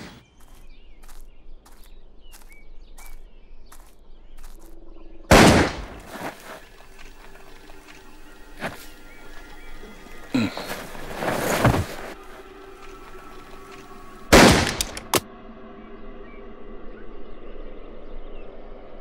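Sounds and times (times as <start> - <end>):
bird chirps: 0.0 - 5.3
footsteps on dry ground: 0.0 - 15.0.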